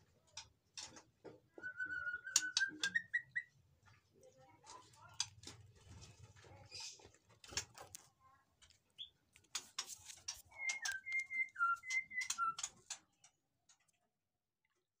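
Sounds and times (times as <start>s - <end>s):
bird chipping and whistling: 1.6s - 3.6s, 10.5s - 12.7s.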